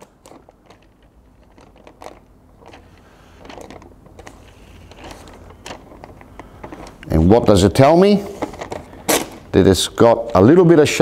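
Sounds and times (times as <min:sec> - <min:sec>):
small clicks and crackles: 0:00.0 - 0:07.1
paper rustling and crinkling: 0:00.0 - 0:09.4.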